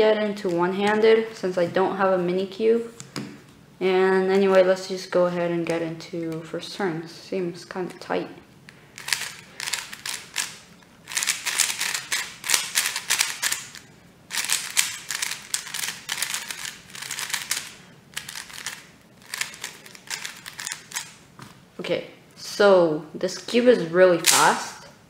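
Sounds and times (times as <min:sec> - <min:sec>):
plastic puzzle cube clicking: 0:09.0 - 0:21.2.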